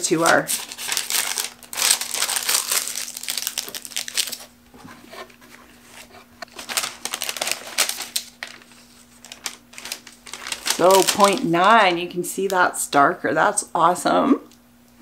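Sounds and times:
paper rustling and crinkling: 0:00.0 - 0:11.9.

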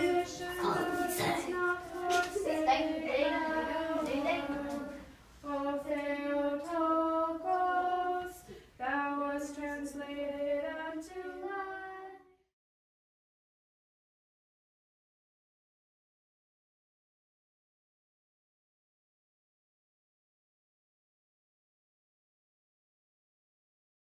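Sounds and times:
children and woman singing: 0:00.0 - 0:12.5.

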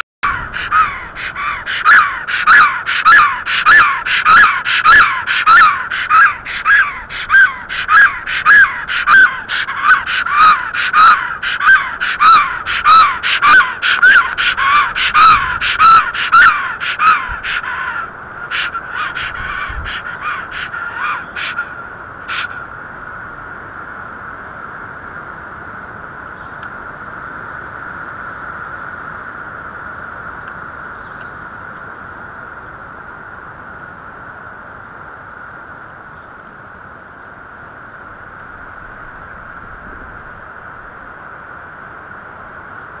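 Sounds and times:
stork calling: 0:00.0 - 0:22.7.

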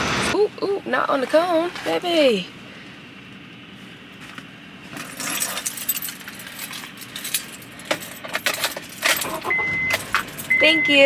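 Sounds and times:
keys jingling: 0:05.0 - 0:10.6.

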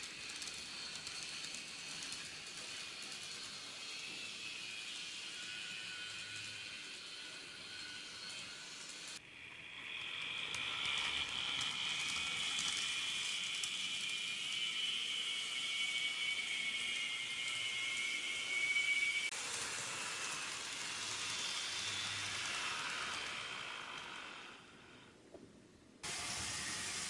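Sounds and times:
model train motor whine: 0:00.0 - 0:25.2, 0:26.0 - 0:27.0.

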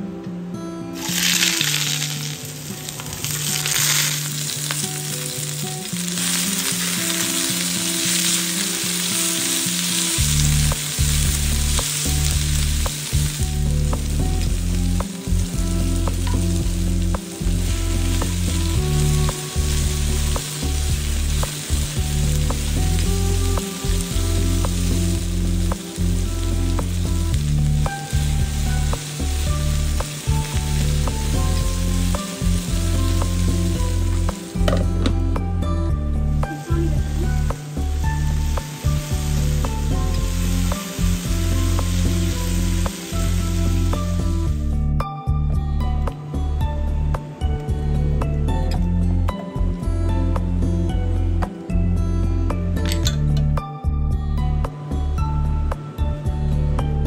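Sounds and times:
background music: 0:00.0 - 0:57.0
vegetables sizzling in frying pan: 0:01.0 - 0:35.3, 0:36.2 - 0:44.6.

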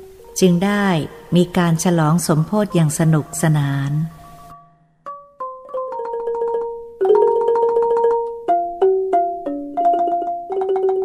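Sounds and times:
marimba melody: 0:02.7 - 0:11.0.

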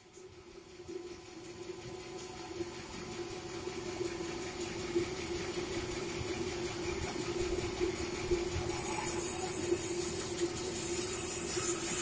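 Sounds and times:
saw blade hissing through log: 0:10.7 - 0:12.0.

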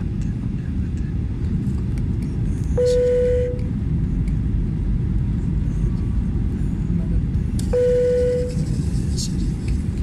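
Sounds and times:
airplane cabin engine roar: 0:00.0 - 0:10.0
short single-pitched tone: 0:02.8 - 0:03.7, 0:07.7 - 0:08.6.

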